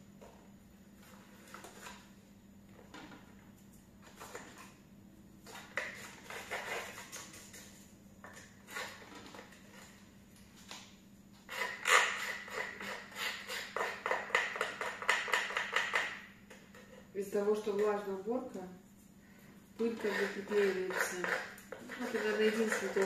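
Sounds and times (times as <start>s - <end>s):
plastic tool scraping: 5.4s - 10.0s, 19.8s - 23.0s.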